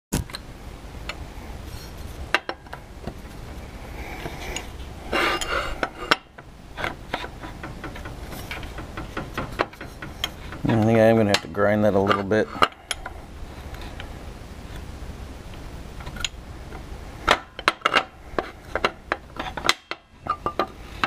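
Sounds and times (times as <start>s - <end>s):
metal scraping on metal: 1.6s - 14.1s
steel parts clinking: 4.2s - 14.0s, 17.2s - 21.0s.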